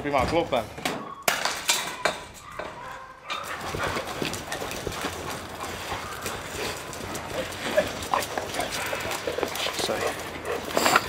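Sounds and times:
dog paws and claws pattering: 0:03.3 - 0:11.0.

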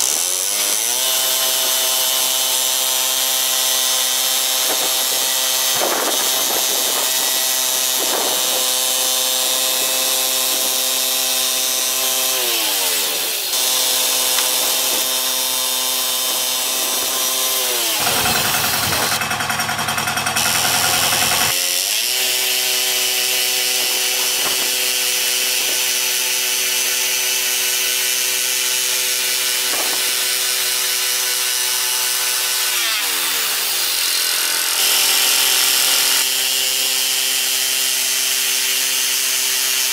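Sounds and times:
petrol engine running: 0:18.0 - 0:21.6.

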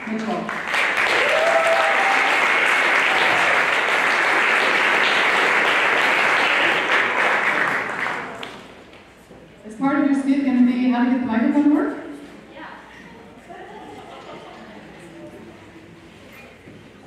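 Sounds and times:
audience applauding: 0:00.0 - 0:08.8
faint voices cheering: 0:01.2 - 0:03.6.

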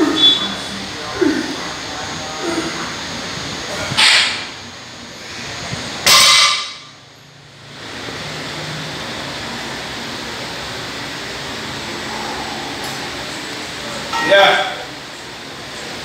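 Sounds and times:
steady background hiss: 0:00.0 - 0:16.0
forceful hissing exhale: 0:11.8 - 0:14.0.

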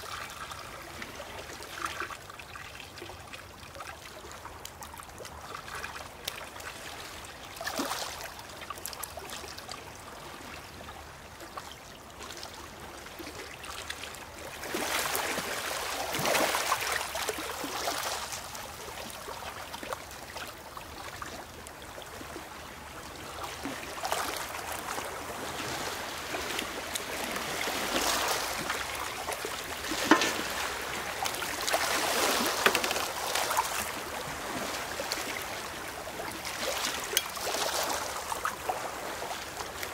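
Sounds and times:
small waves on stones: 0:13.9 - 0:20.5, 0:23.4 - 0:39.9.

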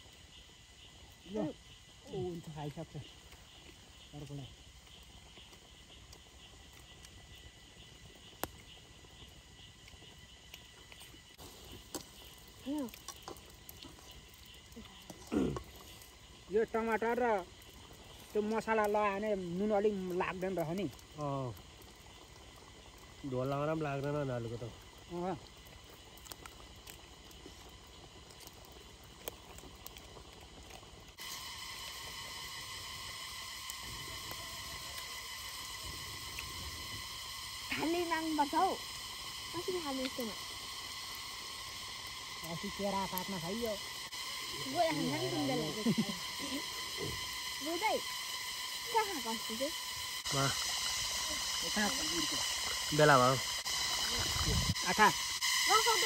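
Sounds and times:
cooking fire crackling: 0:00.0 - 0:56.0
insects chirring: 0:00.0 - 0:56.0
high-pitched hum: 0:31.1 - 0:56.0.

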